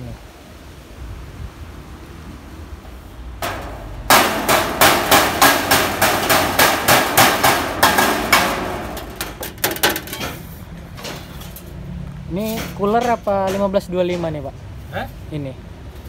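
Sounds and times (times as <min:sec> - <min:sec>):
hammer striking sheet metal: 0:03.4 - 0:10.4, 0:12.5 - 0:14.5.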